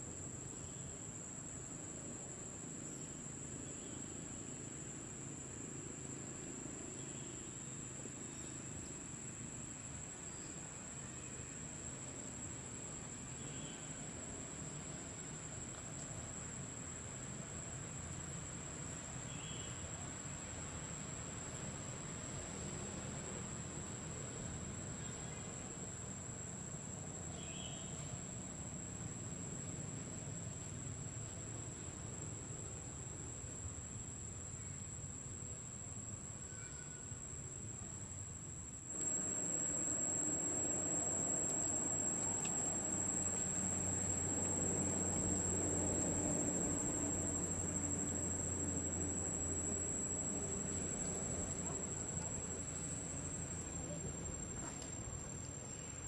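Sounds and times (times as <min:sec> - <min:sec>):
insects singing steadily: 0:00.0 - 0:56.0
low hum: 0:38.9 - 0:55.0
brief insect chirp: 0:38.9 - 0:56.0
low outdoor rumble: 0:38.9 - 0:56.0.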